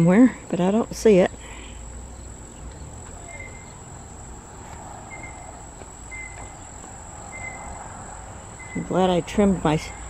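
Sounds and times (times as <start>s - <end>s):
insect high-pitched trill: 0.0s - 10.0s
short insect chirp: 1.1s - 9.2s.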